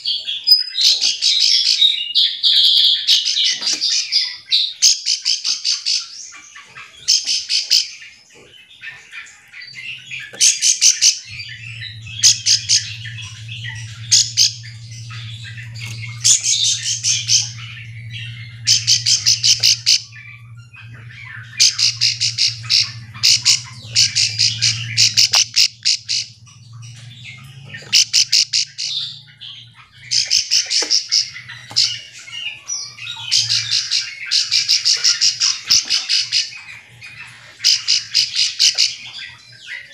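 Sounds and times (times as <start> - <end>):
bird calling in rattling bursts: 0.0 - 39.9
steady low hum: 9.4 - 39.4.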